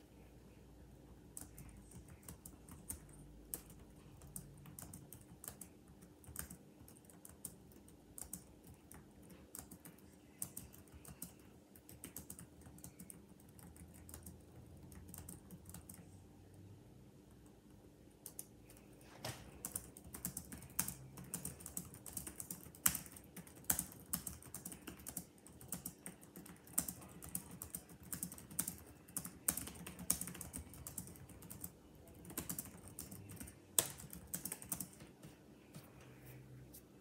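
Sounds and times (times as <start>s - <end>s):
fast typing on laptop keyboard: 1.3s - 16.2s, 18.2s - 18.9s, 19.5s - 35.4s.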